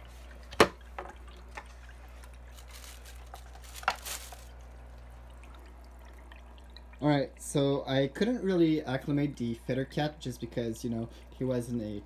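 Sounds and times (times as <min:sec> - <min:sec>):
steady low hum: 0:00.0 - 0:12.0
crinkling rustle: 0:01.6 - 0:04.8.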